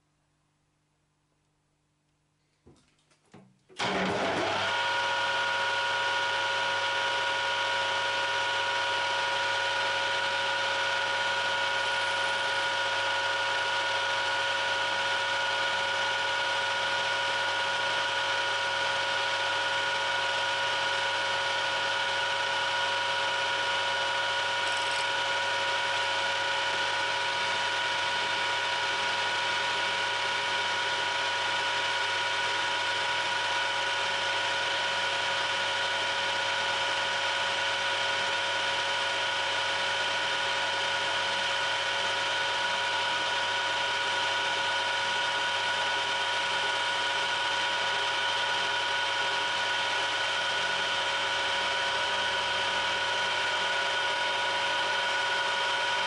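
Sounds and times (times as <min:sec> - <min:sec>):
metal lathe running: 0:03.8 - 0:33.8.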